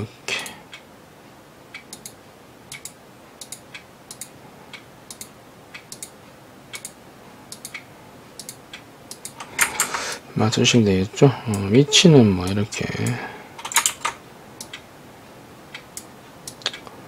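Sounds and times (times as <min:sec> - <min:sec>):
computer mouse clicking: 0:01.8 - 0:09.9, 0:15.8 - 0:16.9.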